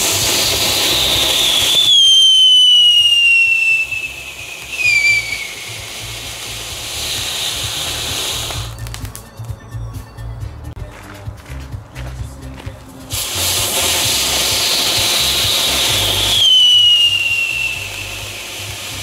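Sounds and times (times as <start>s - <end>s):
firework whistle sliding down: 0.0s - 9.1s, 13.1s - 19.0s
firework fountain hissing: 0.0s - 9.3s, 13.0s - 19.0s.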